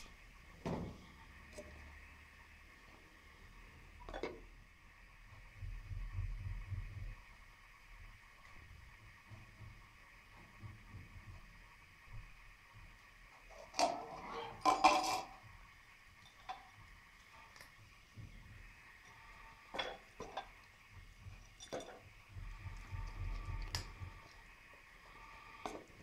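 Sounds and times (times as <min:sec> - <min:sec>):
plastic cups clattering on tiled floor: 0:13.6 - 0:15.4.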